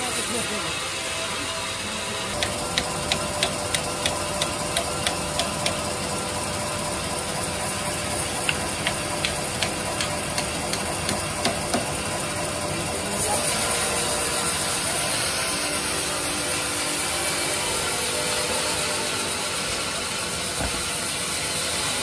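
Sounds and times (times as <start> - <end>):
sawmill machinery hum: 0.0 - 22.0
hammer striking wood: 2.4 - 5.9, 8.4 - 12.0, 20.6 - 20.9.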